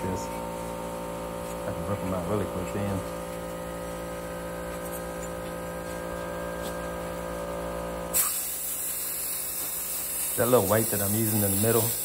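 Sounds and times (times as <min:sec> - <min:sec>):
electrical hum: 0:00.0 - 0:12.0
plasma cutter hissing: 0:08.1 - 0:12.0.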